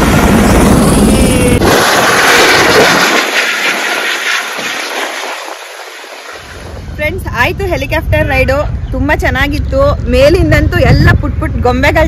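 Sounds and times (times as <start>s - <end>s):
high rushing noise: 0.0s - 7.6s
helicopter rotor and engine: 0.0s - 12.0s.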